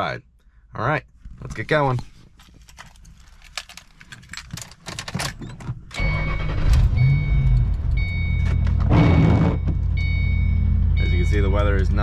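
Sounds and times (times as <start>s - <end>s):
car engine starting and idling: 5.6s - 12.0s
dashboard warning chime: 6.0s - 12.0s.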